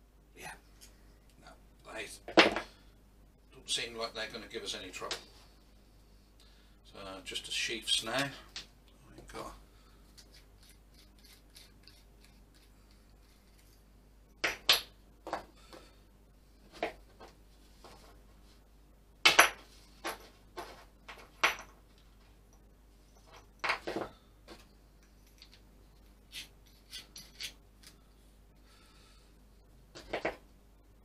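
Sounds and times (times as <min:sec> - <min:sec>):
small tools clicking and clattering: 0:25.0 - 0:25.6, 0:26.3 - 0:28.0.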